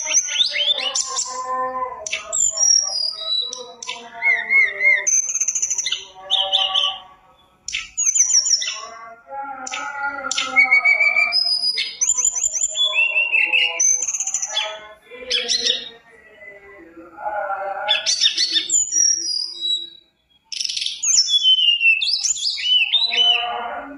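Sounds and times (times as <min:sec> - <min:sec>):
bird singing whistled song: 0:00.0 - 0:09.0, 0:09.6 - 0:16.6, 0:17.9 - 0:23.6.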